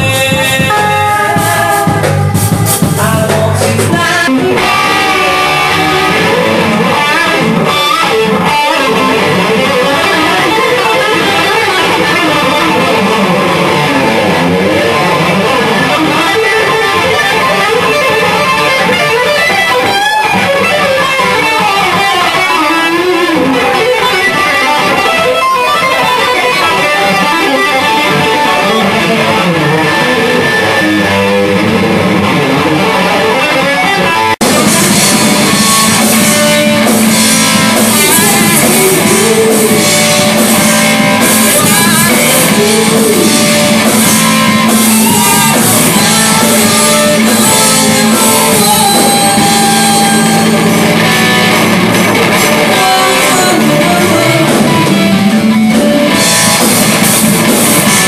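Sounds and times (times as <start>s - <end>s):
electric guitar lead bending: 0.0s - 58.0s
rock band playing live: 0.0s - 58.0s.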